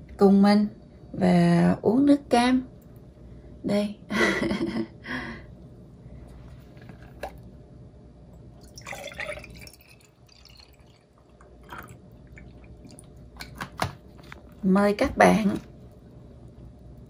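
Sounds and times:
juice pouring into glass jar: 8.6s - 13.2s.

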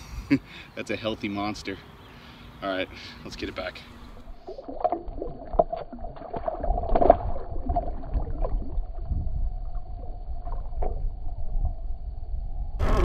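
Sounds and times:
low rumble of moving water: 3.9s - 13.0s
water splashing and gurgling: 4.1s - 11.8s.

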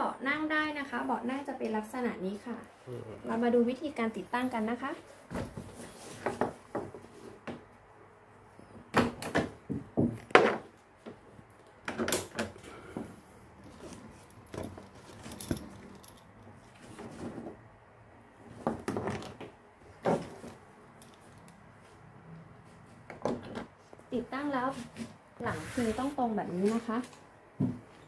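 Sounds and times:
buckles and clips rattling and clicking: 13.6s - 16.8s, 20.5s - 21.6s.

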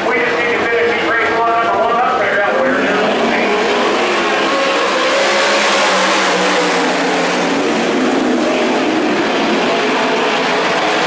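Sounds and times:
racing engines running hard: 0.0s - 11.0s.

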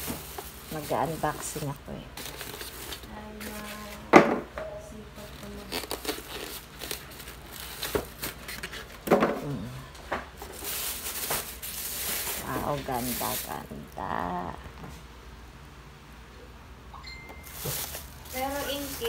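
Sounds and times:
plastic wrap crinkling: 0.0s - 4.1s, 5.2s - 9.6s, 10.3s - 14.4s, 17.4s - 19.0s.

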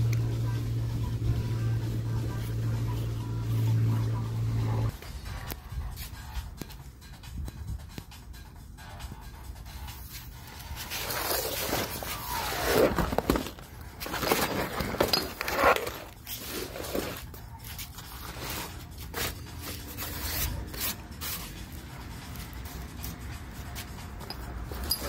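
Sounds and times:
fabric scraping on concrete: 10.0s - 23.9s.

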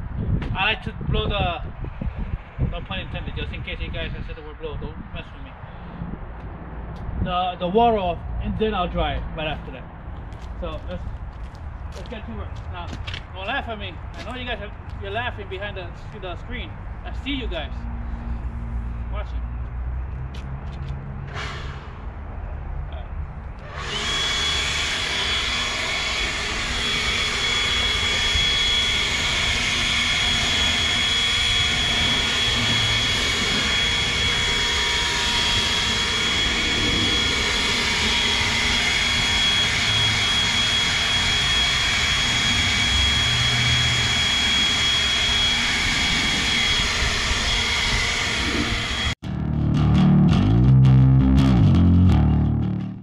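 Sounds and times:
leaf blower whining: 23.6s - 49.2s
guitar music: 49.2s - 53.0s.

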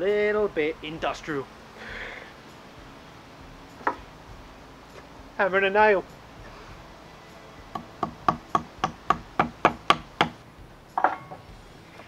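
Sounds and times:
hammer striking nail: 7.7s - 10.4s.

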